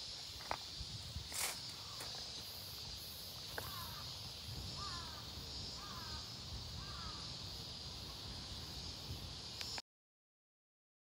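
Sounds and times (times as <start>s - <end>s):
steady high-pitched hiss: 0.0s - 9.8s
crow cawing: 3.6s - 4.1s, 4.8s - 7.3s.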